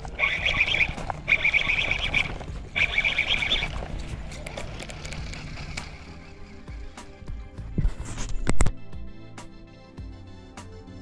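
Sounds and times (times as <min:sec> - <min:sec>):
frog calling in pulsed trills: 0:00.0 - 0:06.3.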